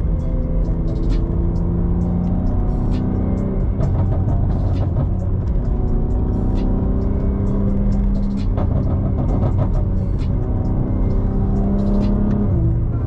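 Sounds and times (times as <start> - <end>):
car engine cruising: 0.0 - 13.0
road noise: 0.0 - 13.0.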